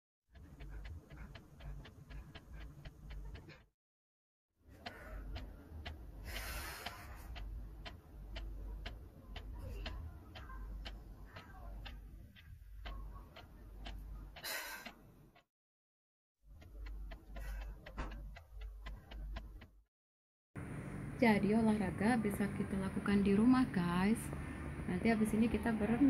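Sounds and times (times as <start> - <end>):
regular ticking: 0.3 - 3.7, 4.6 - 15.5, 16.4 - 19.8, 20.6 - 26.0
low steady rumble: 20.6 - 26.0.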